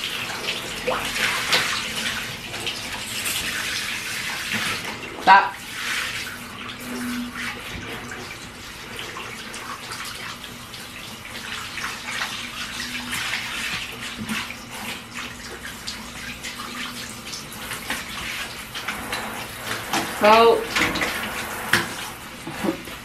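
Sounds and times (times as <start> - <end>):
shower spray splashing on dog: 0.0 - 23.0.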